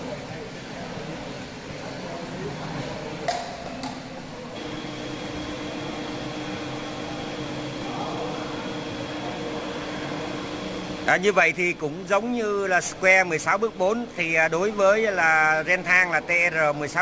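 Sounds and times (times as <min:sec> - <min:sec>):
metal lathe humming and whining: 0:04.6 - 0:14.4.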